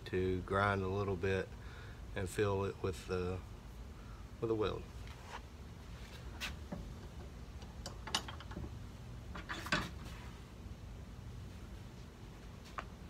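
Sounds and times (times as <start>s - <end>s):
metal clicks and clunks: 6.7s - 8.7s.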